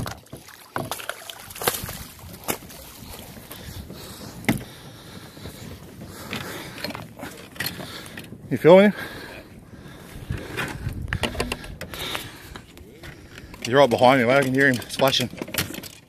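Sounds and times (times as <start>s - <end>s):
water splashing against kayak hull: 0.0s - 16.0s
sharp knocks: 11.2s - 11.9s.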